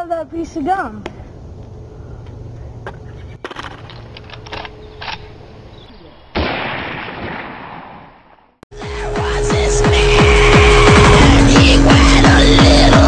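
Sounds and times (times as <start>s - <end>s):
rifle gunshot: 6.4s - 8.2s
low hum: 8.8s - 13.0s.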